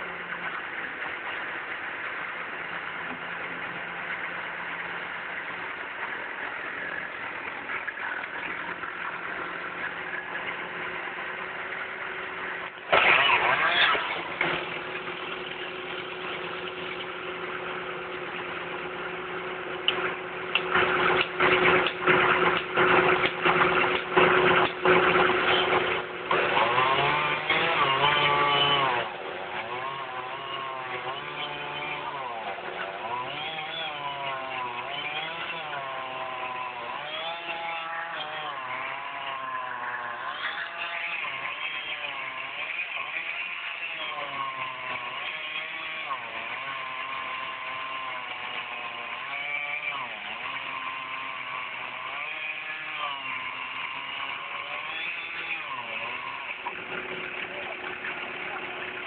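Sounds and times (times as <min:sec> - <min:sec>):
chainsaw engine revving: 0:12.9 - 0:18.8, 0:19.5 - 0:59.0.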